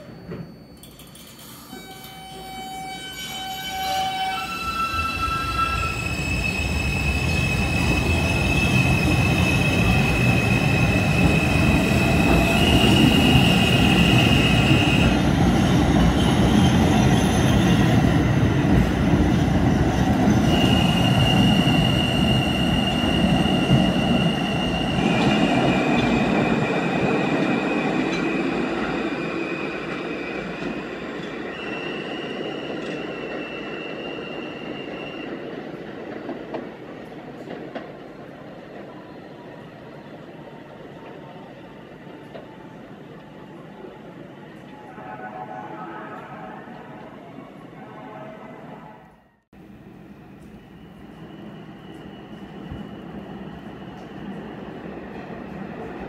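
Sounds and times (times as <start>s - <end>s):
steel wheels squealing: 0.0s - 17.9s, 20.4s - 35.4s
subway train rumble: 0.0s - 56.0s.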